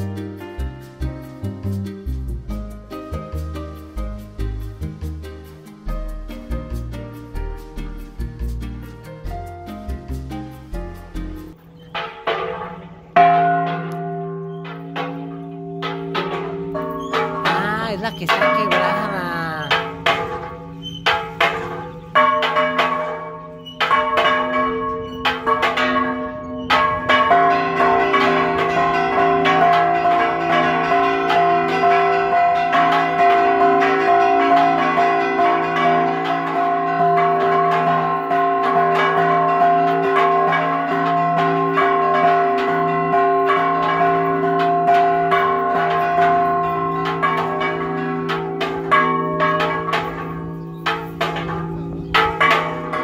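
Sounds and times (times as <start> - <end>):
church bells ringing: 11.9 - 53.0.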